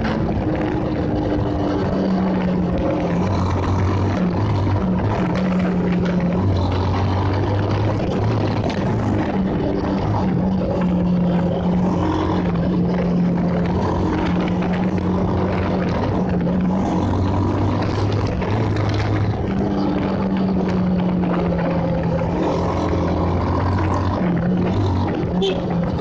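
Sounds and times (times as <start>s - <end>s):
motorcycle engine running: 0.0s - 26.0s
wind and road noise: 0.0s - 26.0s.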